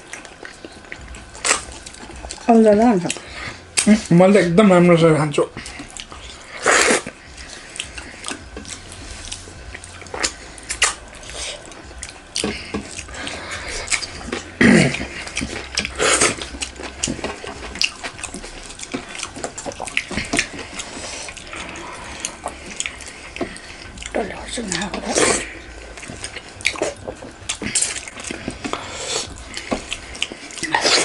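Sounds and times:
wet chewing and lip smacks: 0:00.0 - 0:04.1, 0:05.4 - 0:31.0
fingers squishing food: 0:05.6 - 0:31.0.

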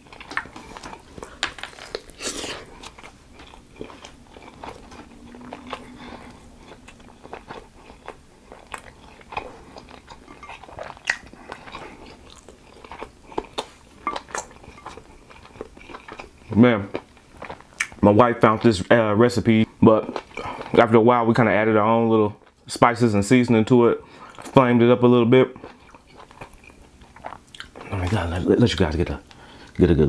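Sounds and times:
chewing and crunching: 0:00.0 - 0:18.9, 0:20.0 - 0:20.9, 0:25.4 - 0:28.7
wet mouth clicks: 0:10.9 - 0:11.3.

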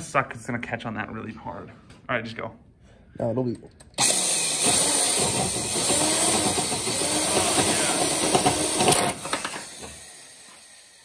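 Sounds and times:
drill bit snapping: 0:03.8 - 0:10.9
power drill grinding and squealing: 0:04.0 - 0:11.0.

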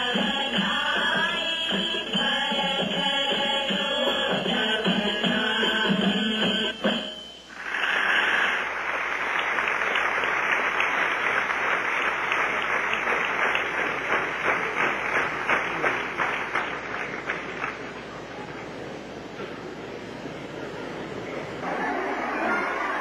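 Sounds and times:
audience applauding: 0:07.6 - 0:18.7, 0:21.6 - 0:23.0.

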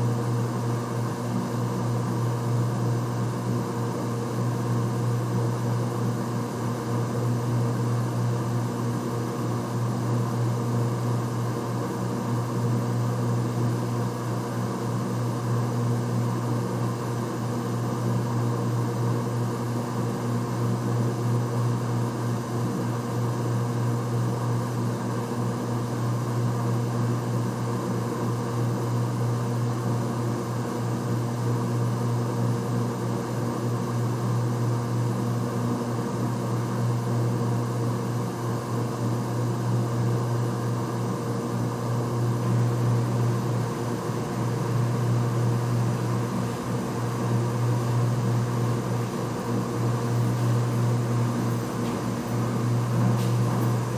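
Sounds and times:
low machine hum: 0:36.0 - 0:53.9.

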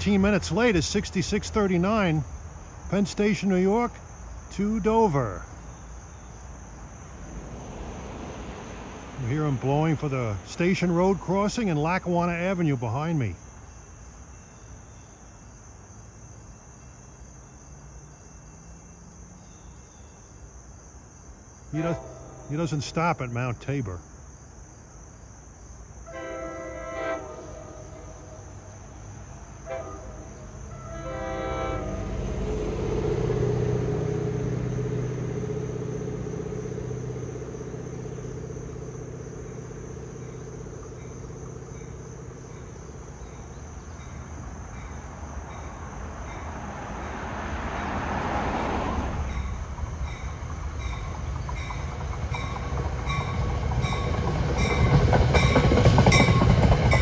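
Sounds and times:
car passing: 0:00.0 - 0:11.9, 0:16.0 - 0:24.0, 0:26.2 - 0:57.0
rumble of approaching train: 0:00.0 - 0:24.3, 0:25.8 - 0:57.0
train horn blasts: 0:21.8 - 0:22.6, 0:26.1 - 0:28.4, 0:29.6 - 0:42.8.

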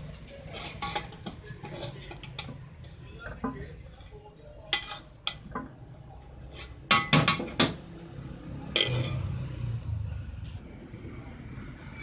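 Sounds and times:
metal spatula clinking on pot: 0:00.4 - 0:05.8, 0:06.5 - 0:07.8, 0:08.7 - 0:09.3.

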